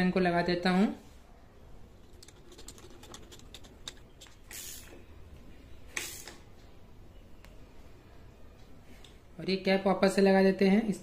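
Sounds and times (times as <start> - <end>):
ratchet wrench clicking: 3.8 - 4.9, 6.0 - 6.4.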